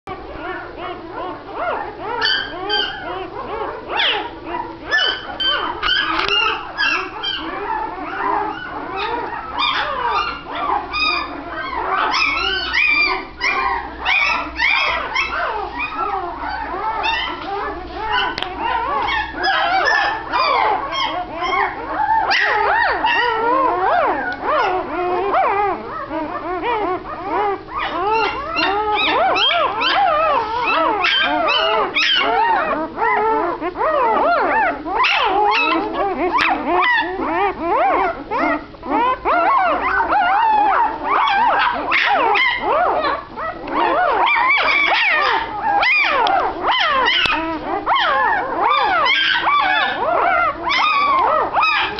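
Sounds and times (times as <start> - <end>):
puppies whining: 0.1 - 51.9.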